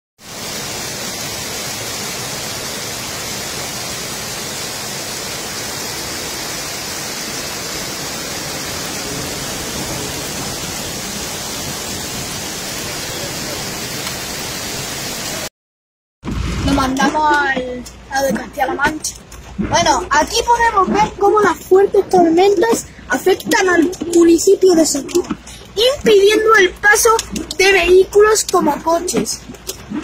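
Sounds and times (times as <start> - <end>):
floodwater rushing: 0.2 - 15.5, 16.3 - 30.0.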